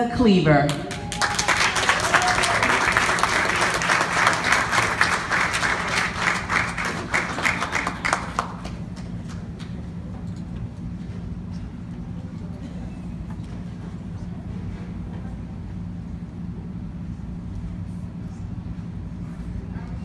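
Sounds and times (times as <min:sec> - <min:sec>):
audience applauding: 0:00.7 - 0:09.9.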